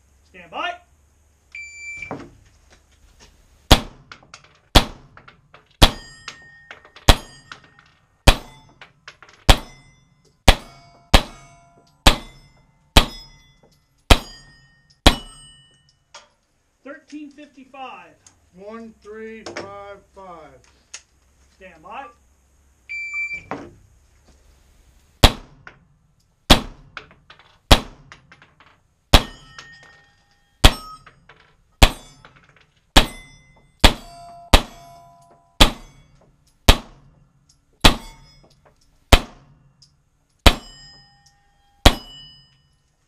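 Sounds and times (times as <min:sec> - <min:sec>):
pistol shots: 0:03.7 - 0:04.1, 0:04.7 - 0:05.2, 0:05.8 - 0:06.2, 0:08.2 - 0:08.6, 0:10.5 - 0:12.4, 0:14.1 - 0:15.4, 0:25.2 - 0:25.7, 0:26.5 - 0:27.0, 0:27.7 - 0:28.1, 0:29.1 - 0:29.5, 0:31.8 - 0:32.2, 0:33.8 - 0:35.0, 0:35.6 - 0:36.0, 0:36.7 - 0:37.1, 0:39.1 - 0:39.6, 0:40.4 - 0:40.8, 0:41.8 - 0:42.2
steel plate target ringing: 0:05.8 - 0:16.3, 0:29.1 - 0:39.8, 0:40.4 - 0:42.9
electronic shot timer beep: 0:22.9 - 0:23.5.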